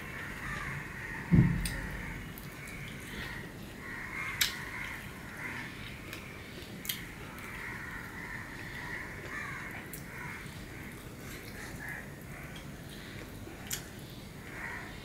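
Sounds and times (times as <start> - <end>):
crows cawing: 0.0 - 5.9, 7.3 - 11.0, 11.6 - 13.0, 14.4 - 15.0.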